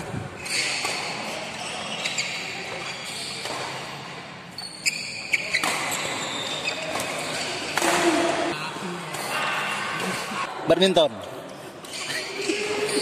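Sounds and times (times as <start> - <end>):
shoes squeaking on court: 0.3 - 8.2
racket hitting shuttlecock: 3.4 - 3.8, 5.5 - 6.2, 6.9 - 8.5.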